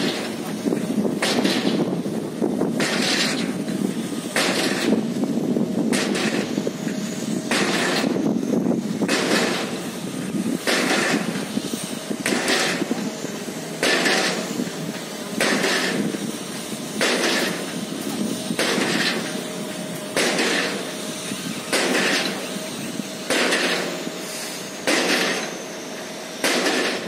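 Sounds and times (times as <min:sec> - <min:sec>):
machinery running: 0:00.0 - 0:27.0
piling hammer strikes: 0:00.0 - 0:27.0.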